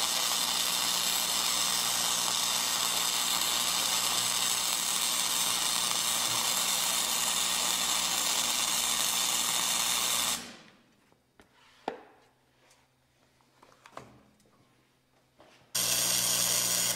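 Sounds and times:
welding arc crackling hiss: 0.0 - 10.7, 15.8 - 16.9.

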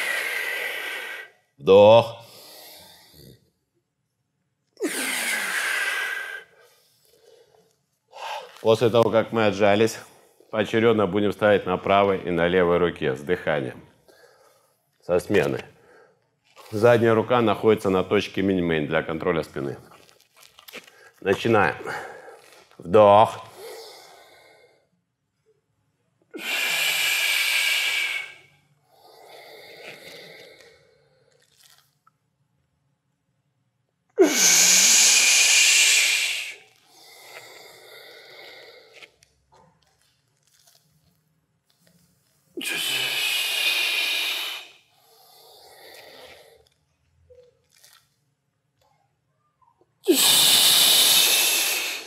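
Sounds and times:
man exhaling forcefully: 4.8 - 6.4, 26.4 - 28.4, 34.2 - 36.6, 42.6 - 44.8, 50.1 - 52.0.

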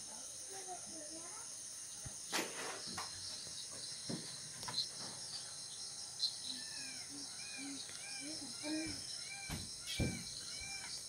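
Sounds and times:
crickets and insects droning: 0.0 - 11.0.

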